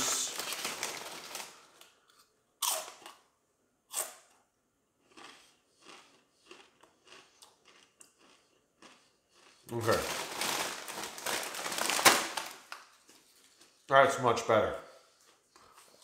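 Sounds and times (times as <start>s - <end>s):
crunching bites of chips: 0.0s - 3.3s, 5.0s - 13.8s
chewing crunches: 2.1s - 3.2s, 5.0s - 10.6s.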